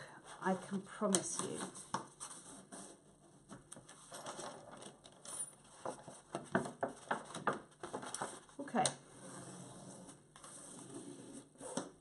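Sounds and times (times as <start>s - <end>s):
paper pages rustling: 3.5s - 5.0s, 5.6s - 8.6s
taps and knocks on paper: 5.8s - 8.9s.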